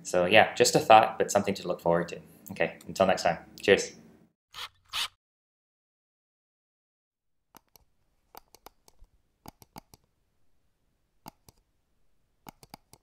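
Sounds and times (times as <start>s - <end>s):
sharp clicks: 7.6s - 10.1s, 12.4s - 13.0s.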